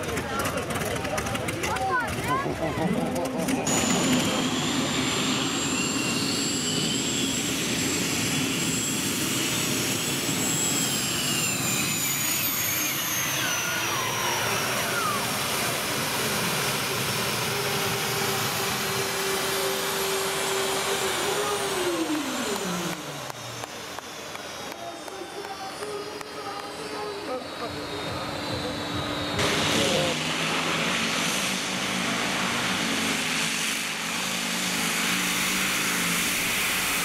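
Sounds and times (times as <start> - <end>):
tractor engine running under load: 0.0 - 5.2, 16.2 - 35.6
high steady whine: 2.7 - 37.0.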